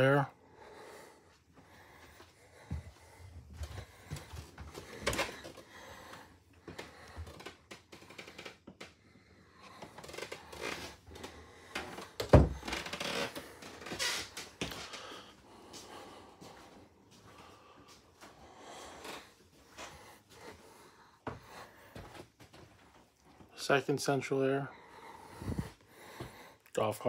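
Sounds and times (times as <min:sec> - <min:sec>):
footsteps on steps: 0:02.1 - 0:05.6, 0:19.6 - 0:23.5.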